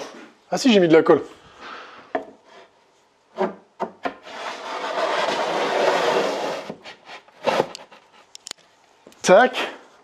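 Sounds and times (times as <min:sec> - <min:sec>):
wooden panel scraping along joint: 0:02.4 - 0:08.2.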